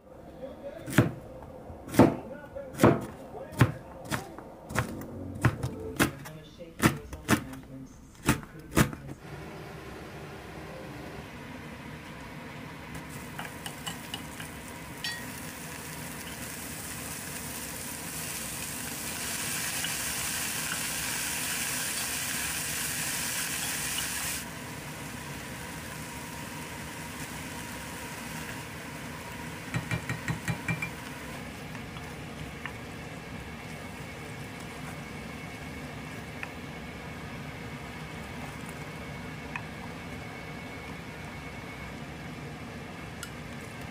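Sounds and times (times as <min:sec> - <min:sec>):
food sizzling in a frying pan: 0:12.8 - 0:39.0.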